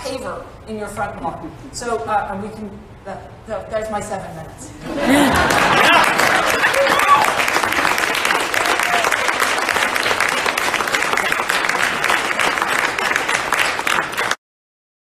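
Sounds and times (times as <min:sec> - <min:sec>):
audience applauding: 0:05.1 - 0:14.4.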